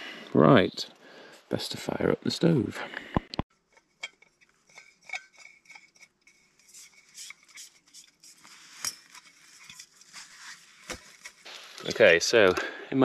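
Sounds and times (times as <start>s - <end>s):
metal cook pot clinking: 4.0s - 6.1s.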